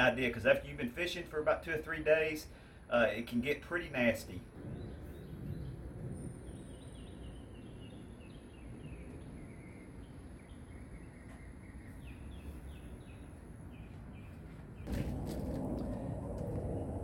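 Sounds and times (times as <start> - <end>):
low rumble: 4.4 - 11.1, 11.8 - 17.0
small bird chirping: 4.6 - 15.0.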